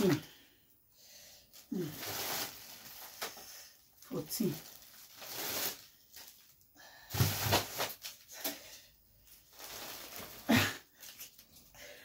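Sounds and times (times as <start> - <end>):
plastic bag crinkling: 1.5 - 8.5, 9.2 - 11.7.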